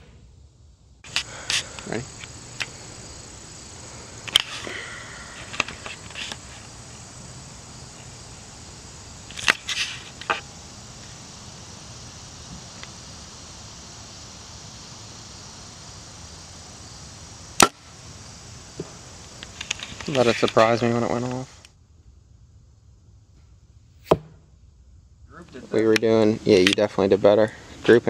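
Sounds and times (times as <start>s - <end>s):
bowstring snap: 4.2s - 4.6s.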